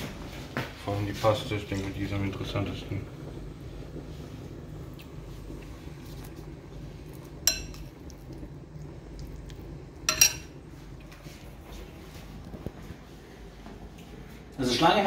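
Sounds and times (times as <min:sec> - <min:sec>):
metal spoon clinking glass bowl: 0:07.4 - 0:07.9, 0:10.1 - 0:10.6.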